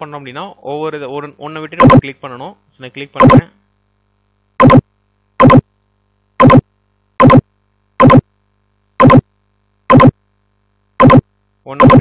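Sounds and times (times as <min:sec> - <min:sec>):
loud pitched click: 0:01.8 - 0:02.0, 0:03.2 - 0:03.5, 0:04.6 - 0:05.7, 0:06.4 - 0:08.3, 0:09.0 - 0:09.3, 0:09.9 - 0:10.2, 0:11.0 - 0:12.0.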